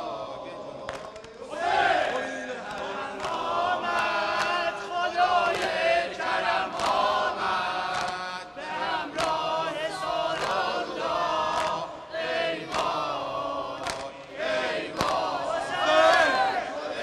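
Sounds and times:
men chanting a lament: 0.0s - 17.0s
chest-beating slaps: 7.8s - 8.2s, 9.2s - 9.4s, 12.7s - 13.0s, 13.8s - 14.3s, 14.9s - 15.3s.

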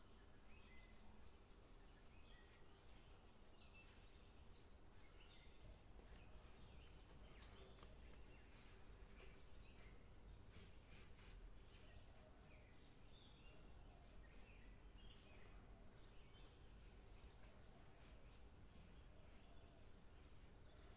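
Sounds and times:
faint bird chirps: 0.0s - 20.9s
light clicks: 7.1s - 8.3s.

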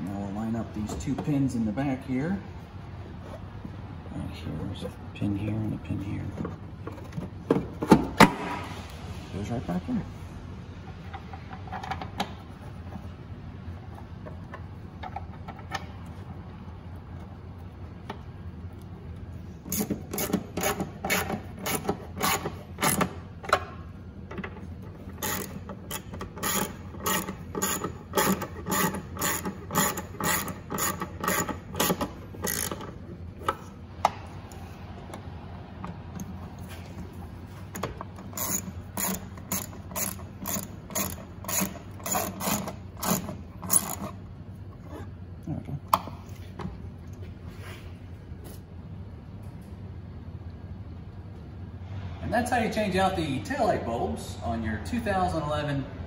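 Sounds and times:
ratchet wrench clicking: 19.7s - 23.1s, 25.1s - 33.6s, 38.2s - 44.2s.

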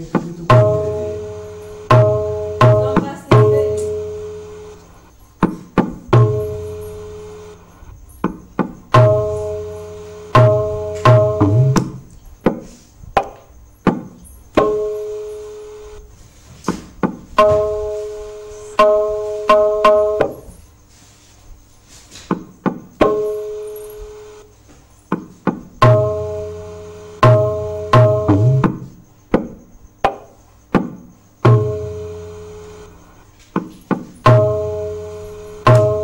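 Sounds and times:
ringing treble drum strokes: 0.4s - 4.8s, 8.9s - 12.0s, 17.4s - 20.5s, 25.8s - 28.7s, 34.2s - 36.0s.

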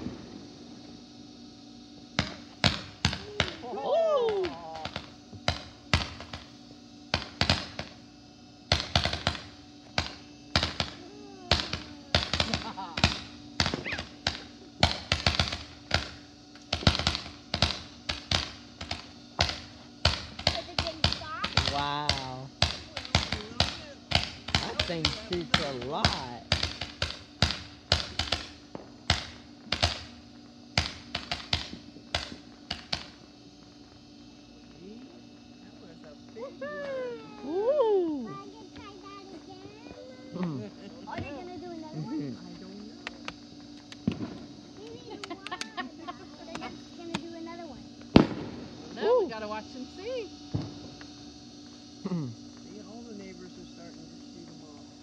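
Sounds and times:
fireworks bangs: 0.0s - 1.0s, 2.2s - 8.0s, 8.7s - 33.9s, 43.9s - 49.5s, 50.5s - 51.0s.

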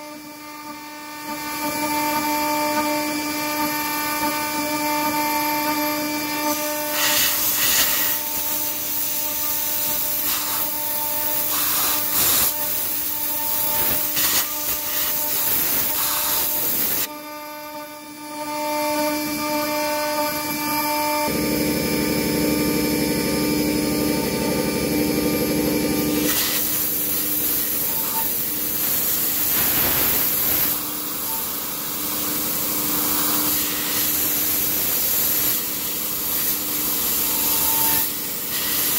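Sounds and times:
milling spindle whine: 0.0s - 29.5s
cutter scraping metal: 0.4s - 21.4s, 26.0s - 38.9s.

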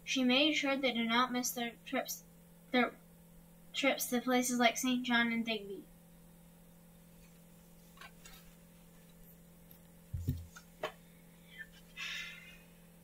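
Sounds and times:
low electrical hum: 0.0s - 13.0s
soft low thump: 10.1s - 10.5s.

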